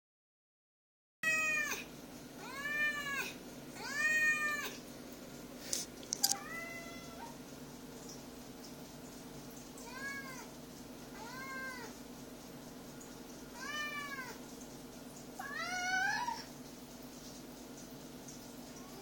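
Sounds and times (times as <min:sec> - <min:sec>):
cats meowing: 0:01.2 - 0:04.8, 0:06.2 - 0:07.4, 0:09.8 - 0:10.5, 0:11.2 - 0:12.0, 0:13.5 - 0:14.4, 0:15.4 - 0:16.5
low steady hum: 0:01.2 - 0:19.0.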